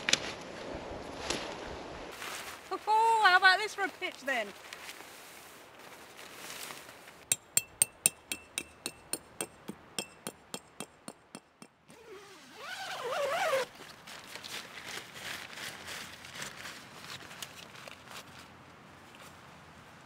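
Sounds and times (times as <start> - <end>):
tent fabric rustling: 2.1 - 3.1, 4.6 - 7.2, 11.9 - 18.5
tent peg hammered into ground: 7.3 - 12.1.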